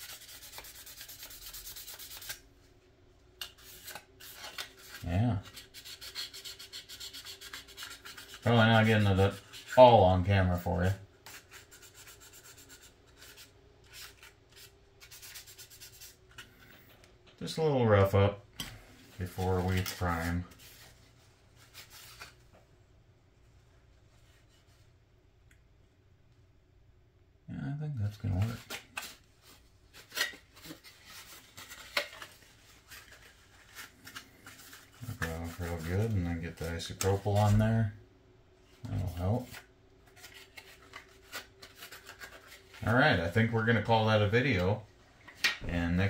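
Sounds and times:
sanding sponge rubbing plastic: 0.0s - 2.4s, 4.9s - 9.8s, 11.3s - 13.5s
paper towel rubbing on plastic: 3.6s - 16.2s, 19.2s - 22.4s, 30.6s - 37.8s.

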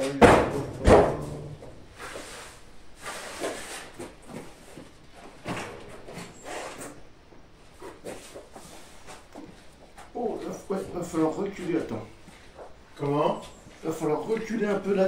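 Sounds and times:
quiet knocks and rustles: 3.4s - 14.9s.

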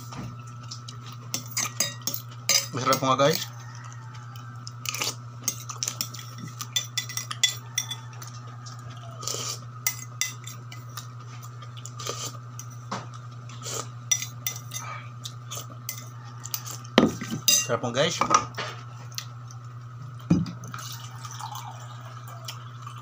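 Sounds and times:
metal spoon clinking on plate: 1.4s - 3.6s, 4.9s - 8.0s, 17.4s - 17.8s.

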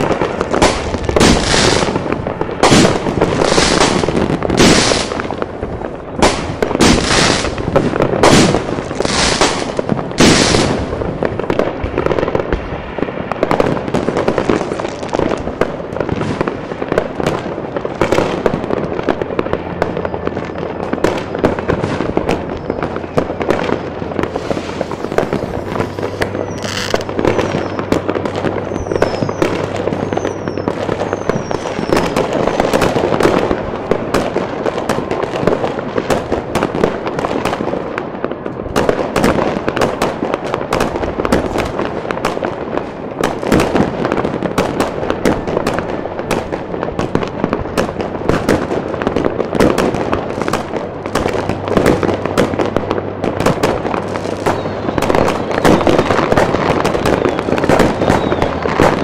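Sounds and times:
fireworks bangs and crackle: 0.0s - 59.0s
falling whistles: 26.0s - 27.9s, 28.6s - 32.1s, 57.0s - 59.0s.

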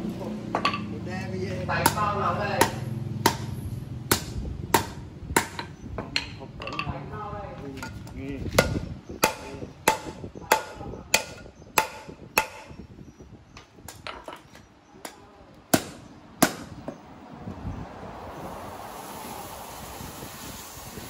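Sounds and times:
hammer striking steel: 1.8s - 6.4s, 8.6s - 12.7s
steady hiss: 18.2s - 21.0s.

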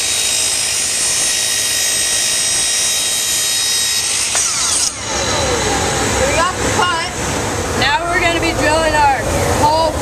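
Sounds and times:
miter saw cutting wood: 0.0s - 7.7s.

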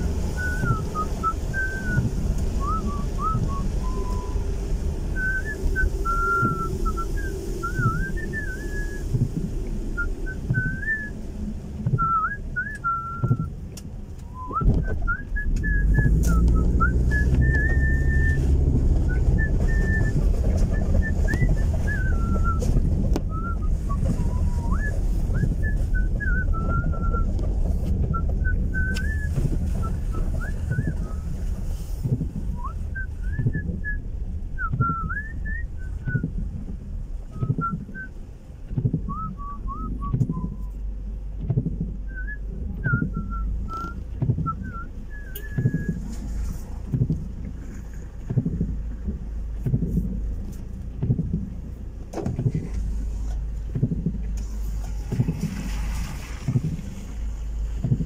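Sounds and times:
car rumble on wet road: 0.0s - 58.0s
person whistling a tune: 0.3s - 4.4s, 5.2s - 9.1s, 10.0s - 11.2s, 12.0s - 13.5s, 14.3s - 27.3s, 28.1s - 31.3s, 32.6s - 34.0s, 34.6s - 36.3s, 37.3s - 38.2s, 39.1s - 40.8s, 42.1s - 46.1s.

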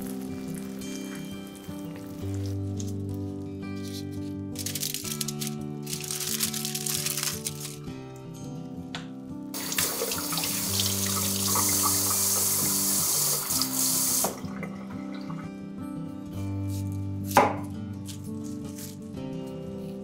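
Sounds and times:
soft background music: 0.0s - 20.0s
tap running into sink: 9.6s - 14.7s.

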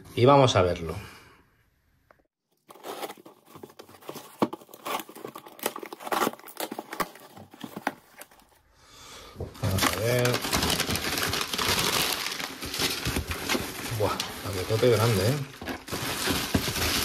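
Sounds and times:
packaging tearing and crinkling: 2.6s - 8.5s, 9.6s - 17.0s.

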